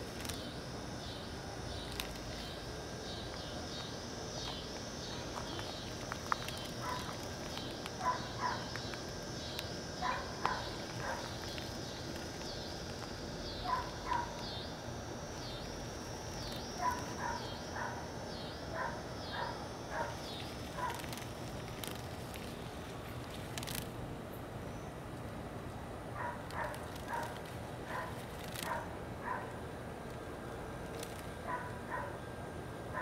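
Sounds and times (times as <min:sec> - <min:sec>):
insects chirping: 0:00.0 - 0:33.0
sharp animal calls: 0:08.0 - 0:08.7, 0:13.6 - 0:14.4.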